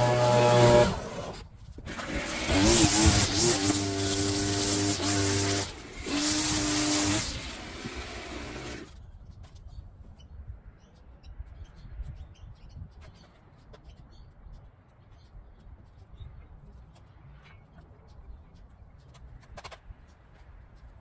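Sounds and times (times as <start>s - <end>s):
power tool whining: 0.0s - 9.0s.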